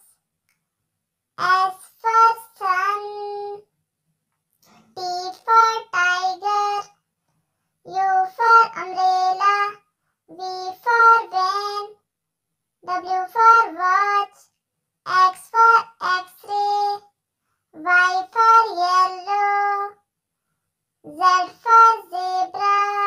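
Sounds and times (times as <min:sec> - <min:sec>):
child singing: 0:00.0 - 0:00.2, 0:01.4 - 0:03.7, 0:04.6 - 0:07.0, 0:07.8 - 0:12.1, 0:12.8 - 0:20.1, 0:21.0 - 0:23.0.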